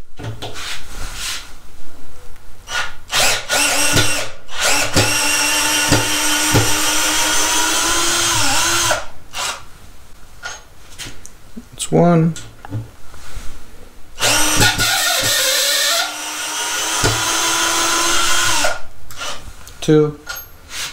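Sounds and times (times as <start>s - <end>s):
cordless drill motor whine: 3.1s - 9.5s, 14.2s - 19.3s.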